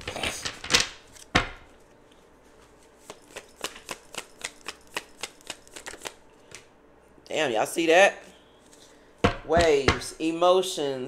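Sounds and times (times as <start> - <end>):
cards clicking while shuffled: 3.0 - 6.7.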